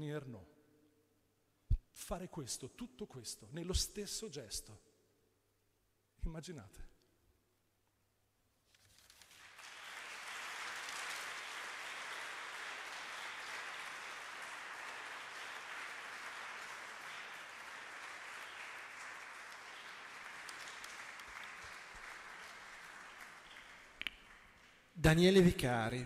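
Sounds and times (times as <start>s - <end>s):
audience applauding: 9.1s - 25.3s.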